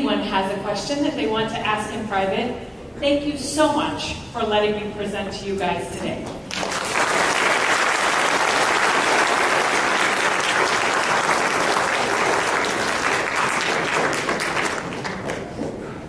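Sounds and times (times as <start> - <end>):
audience applauding: 6.5 - 15.8.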